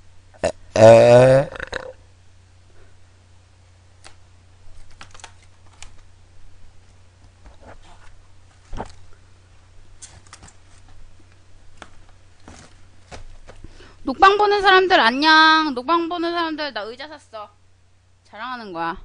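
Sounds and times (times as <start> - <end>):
steady low hum: 0.0 - 19.0
cardboard boxes being handled: 11.8 - 13.7.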